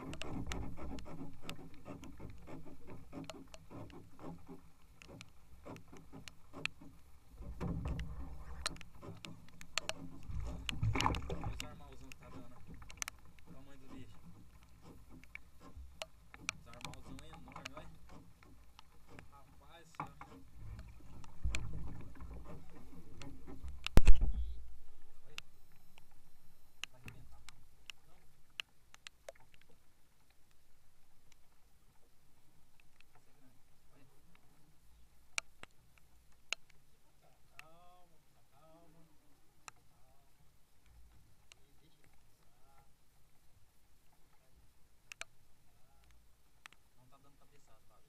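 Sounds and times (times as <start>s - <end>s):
clicks and taps in metal boat: 0.0s - 24.6s.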